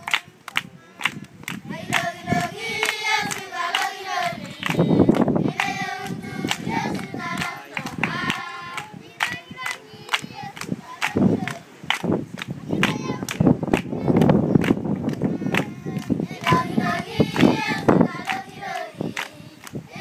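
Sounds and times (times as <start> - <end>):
hands clapping in rhythm: 0.0 - 19.8
children singing together: 1.7 - 11.7, 15.3 - 20.0.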